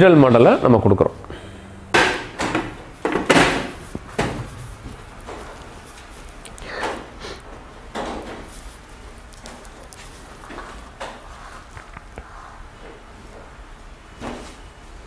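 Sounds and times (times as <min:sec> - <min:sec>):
clunks of metal cabinets: 0:01.9 - 0:05.6.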